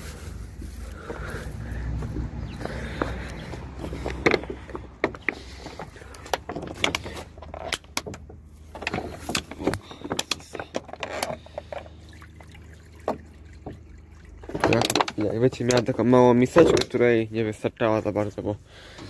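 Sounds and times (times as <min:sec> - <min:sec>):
clicks and knocks on wood: 0:02.0 - 0:11.8.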